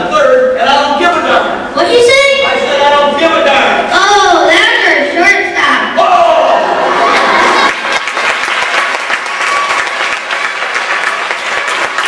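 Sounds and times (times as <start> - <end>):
children applauding: 7.0 - 12.0.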